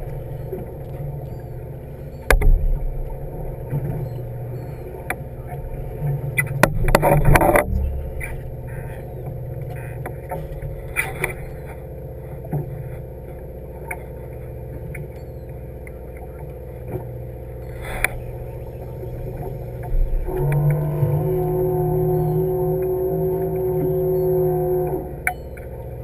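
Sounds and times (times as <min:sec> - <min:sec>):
higher droning tone: 0:00.0 - 0:12.4, 0:15.1 - 0:26.0
boat engine droning: 0:00.0 - 0:26.0
light clicks and knocks from gear: 0:02.2 - 0:18.2.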